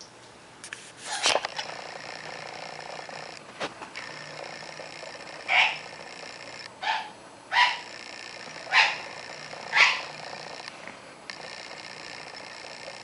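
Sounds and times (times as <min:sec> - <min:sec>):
parrot harsh squawks: 0:05.5 - 0:05.8, 0:06.8 - 0:07.8, 0:09.7 - 0:10.1.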